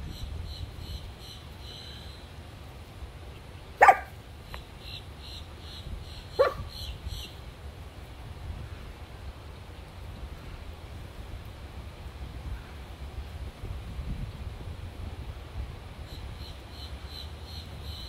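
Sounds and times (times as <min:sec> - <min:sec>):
small dog barking sharply: 0:03.8 - 0:04.2, 0:06.4 - 0:06.7.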